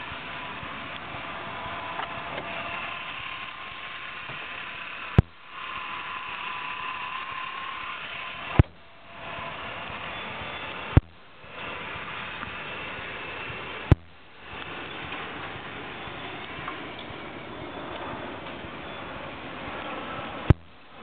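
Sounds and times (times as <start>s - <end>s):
car engine idling: 0.0s - 21.0s
faint whine: 0.0s - 21.0s.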